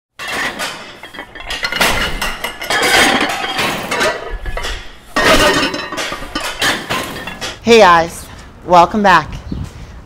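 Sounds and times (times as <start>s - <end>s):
metallic clanging and clinking: 0.2s - 7.7s.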